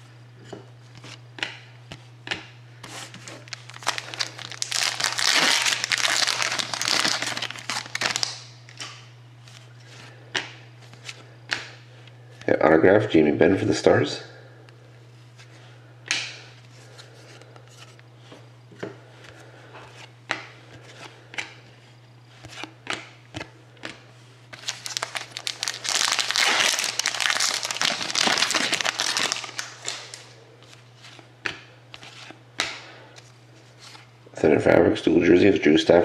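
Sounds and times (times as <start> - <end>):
wrapper tearing and crinkling: 3.3 - 8.5, 24.6 - 30.3.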